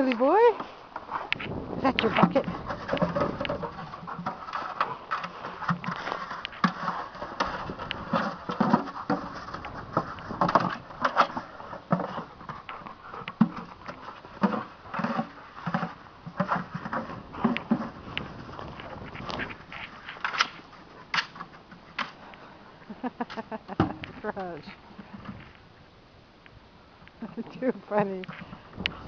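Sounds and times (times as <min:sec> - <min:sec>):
plastic bucket scraping on snow: 0:00.0 - 0:22.2.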